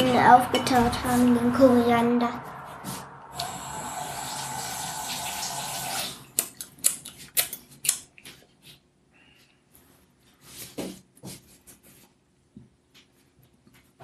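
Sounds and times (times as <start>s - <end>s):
kitchen tap running: 3.4s - 6.5s.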